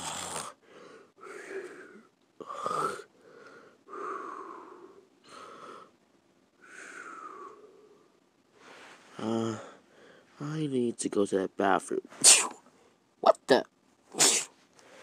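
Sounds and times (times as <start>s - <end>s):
person snoring: 0.0s - 3.1s, 9.1s - 9.8s.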